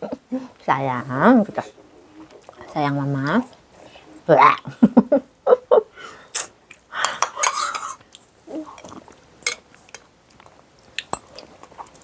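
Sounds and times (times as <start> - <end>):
spoon scraping a bowl: 7.1 - 8.0.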